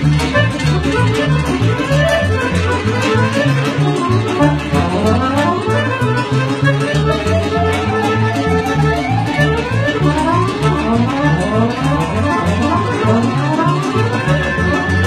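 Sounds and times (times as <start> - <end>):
piano accordion playing: 0.0 - 15.0.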